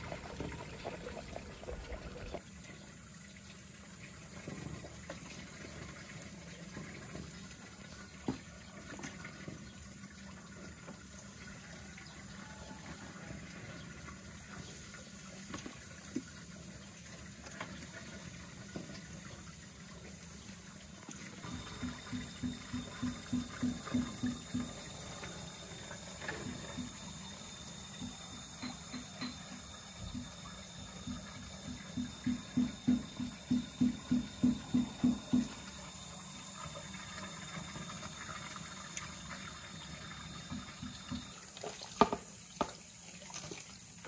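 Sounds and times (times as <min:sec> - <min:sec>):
meat sizzling over charcoal: 0:09.6 - 0:43.0.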